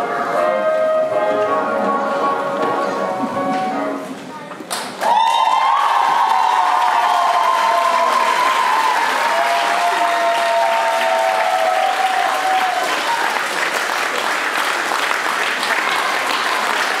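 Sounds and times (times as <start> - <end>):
audience applauding: 4.7 - 17.0.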